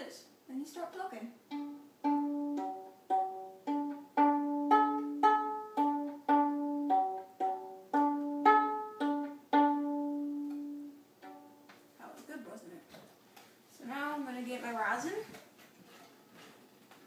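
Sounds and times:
viola played pizzicato: 1.4s - 11.7s.

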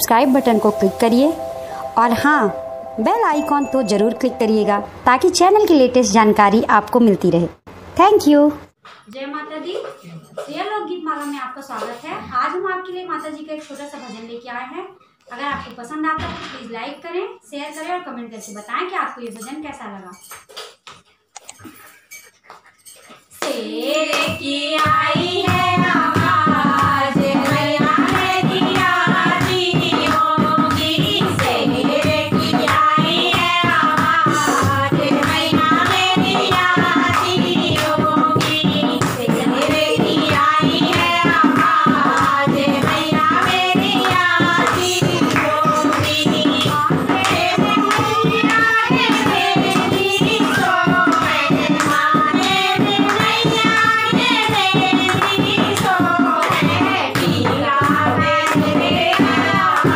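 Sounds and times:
women singing together: 0.0s - 4.9s, 23.4s - 59.9s
rhythmic hand clapping: 22.4s - 59.9s.

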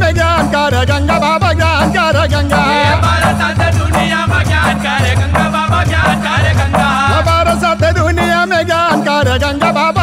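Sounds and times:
drum beating: 0.0s - 10.0s
jingling cymbal-like percussion: 0.1s - 10.0s
wavering melody: 2.6s - 3.2s.

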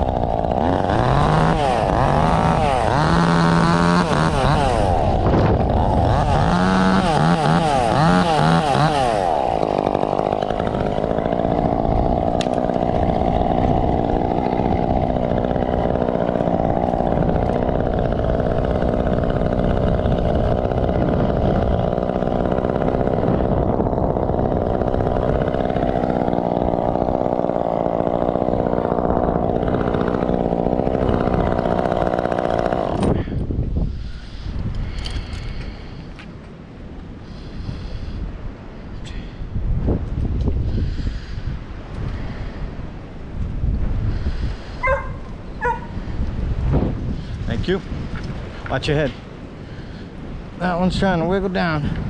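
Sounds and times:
chainsaw engine revving: 0.0s - 36.0s, 37.2s - 38.2s.

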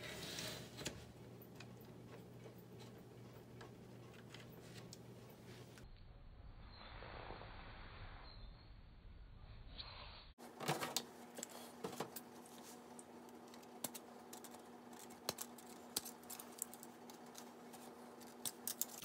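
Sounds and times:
plastic parts clicking and rattling: 13.4s - 19.0s.

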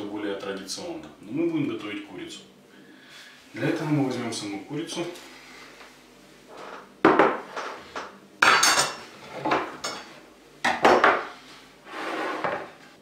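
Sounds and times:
plate and board knocking on table: 7.0s - 8.8s, 10.6s - 11.3s.

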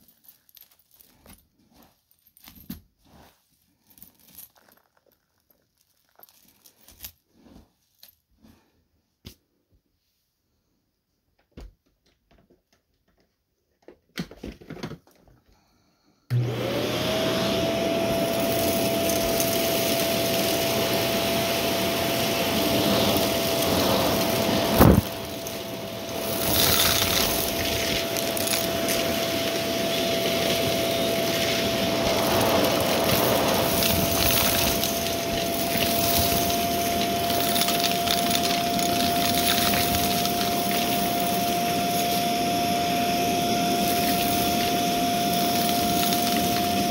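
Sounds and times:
upright vacuum cleaner running: 16.3s - 46.9s.

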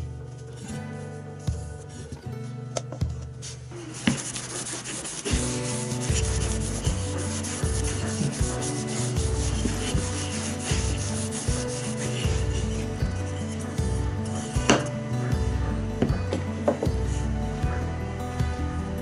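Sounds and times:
background music with bass notes: 0.0s - 19.0s
paper towel wiping surface: 3.4s - 17.2s.

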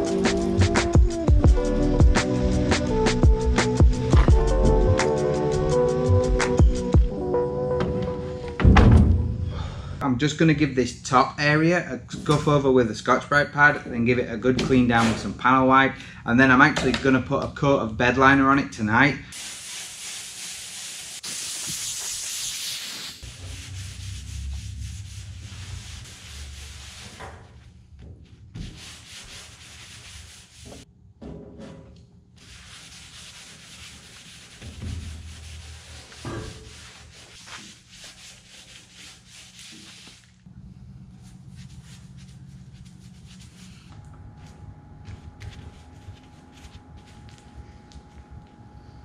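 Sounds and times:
abrasive pad rubbing metal: 20.1s - 27.7s, 32.4s - 40.2s.

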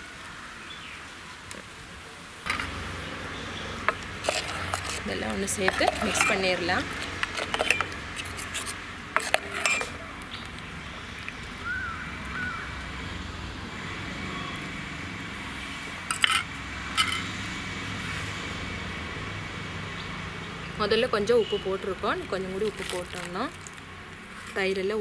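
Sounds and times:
ladle clinking against a pot: 5.6s - 6.5s, 9.2s - 10.0s.

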